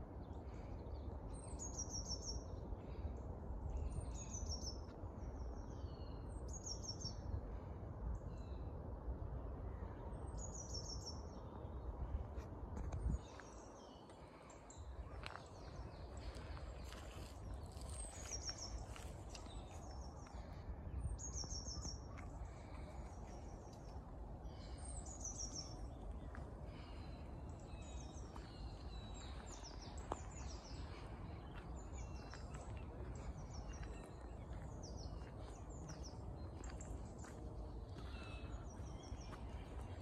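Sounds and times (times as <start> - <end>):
steady low rumble: 0.0 - 40.0
small songbirds calling: 0.3 - 7.4, 13.1 - 40.0.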